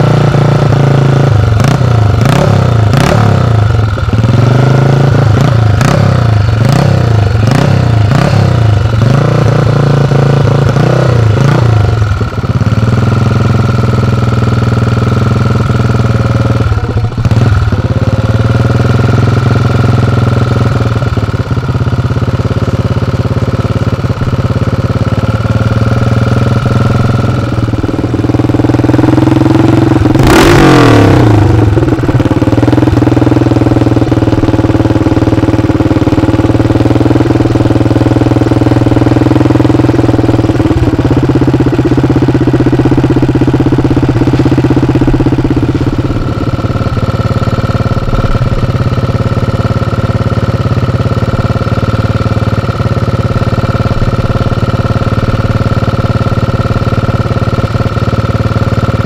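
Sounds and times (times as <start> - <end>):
motorcycle engine idling and revving: 0.0 - 59.0.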